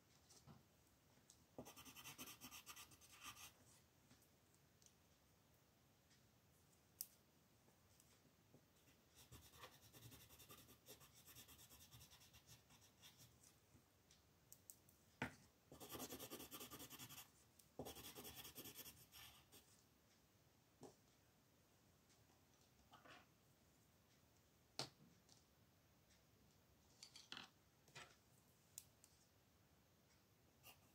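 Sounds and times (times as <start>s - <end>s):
pen scratching on paper: 1.6s - 3.5s, 9.2s - 13.2s, 15.7s - 19.5s.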